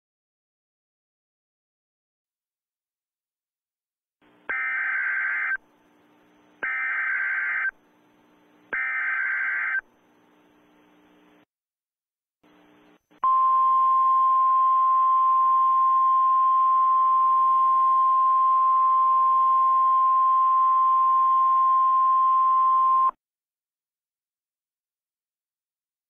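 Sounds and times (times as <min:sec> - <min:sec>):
faint radio hiss: 0:04.2 - 0:11.5, 0:12.4 - 0:13.2.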